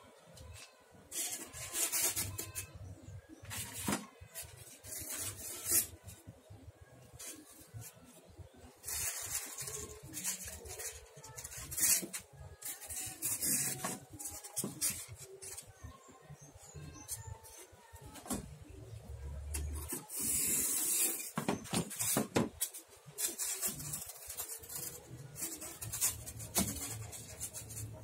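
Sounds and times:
foam scraping and rubbing: 1.1 - 6.4, 7.0 - 15.7, 19.7 - 28.0.

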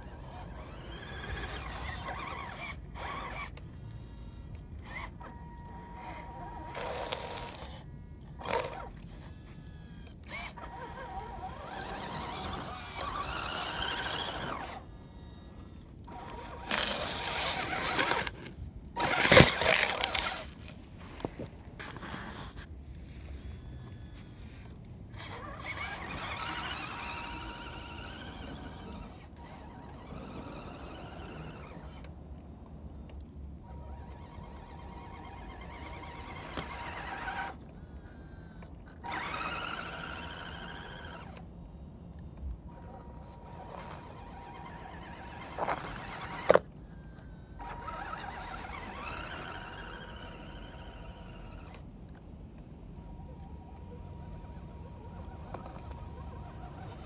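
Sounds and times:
toy car motor whining: 0.0 - 32.2, 33.0 - 52.2, 53.0 - 57.0.

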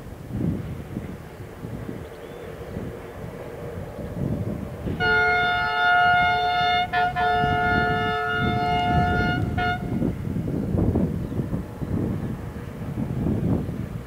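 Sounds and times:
wind buffeting microphone: 0.0 - 14.0
locomotive air horn: 4.9 - 10.2.

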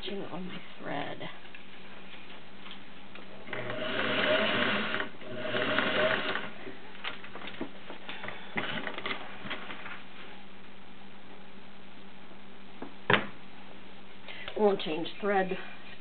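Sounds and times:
sewing machine stitching: 3.5 - 6.6.

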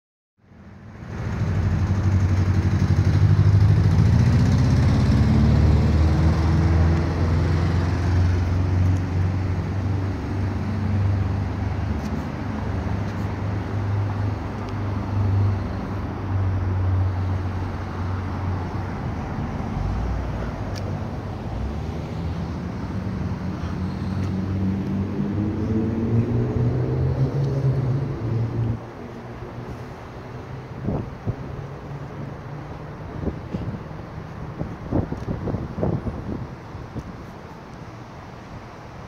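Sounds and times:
city street traffic rumble: 0.4 - 39.0
vehicle engine speeding up: 1.1 - 10.1, 24.2 - 31.0.

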